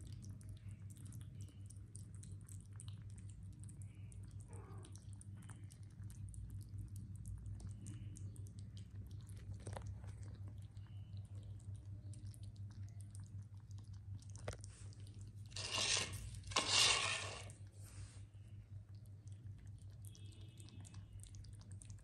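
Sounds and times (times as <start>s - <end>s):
kittens lapping: 0.0s - 22.0s
steady low hum: 0.0s - 22.0s
plate scraping: 15.6s - 17.6s.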